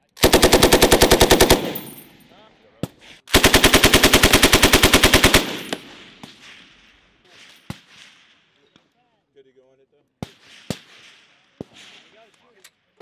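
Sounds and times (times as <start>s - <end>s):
machine gun burst: 0.2s - 2.1s, 3.3s - 5.9s.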